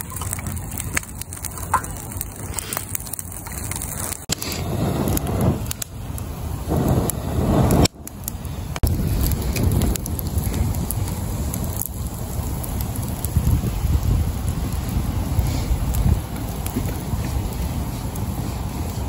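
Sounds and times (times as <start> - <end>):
fire crackling and popping: 0.0 - 19.0
low rumble: 4.1 - 19.0.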